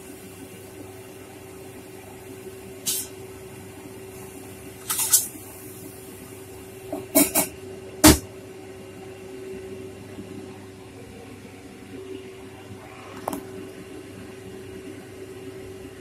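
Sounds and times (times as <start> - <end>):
steady hum: 0.0 - 16.0
light hiss: 2.8 - 3.2, 4.2 - 6.0.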